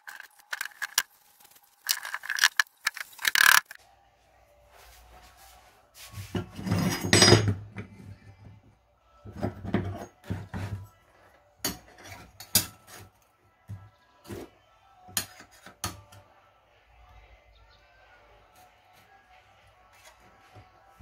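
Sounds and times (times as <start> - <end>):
wood scraping on wood: 0.0 - 3.8.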